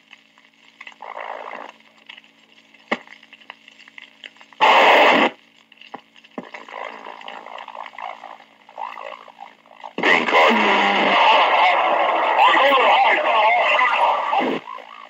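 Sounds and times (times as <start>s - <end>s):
hiss and crackle: 0.0s - 15.0s
steady low hum: 0.0s - 15.0s
loud burst of noise: 4.6s - 5.4s, 10.0s - 15.0s.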